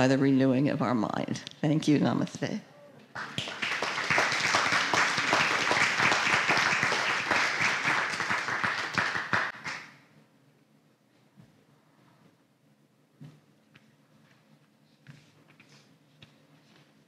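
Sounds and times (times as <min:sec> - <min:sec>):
crowd applauding: 0:03.1 - 0:10.0.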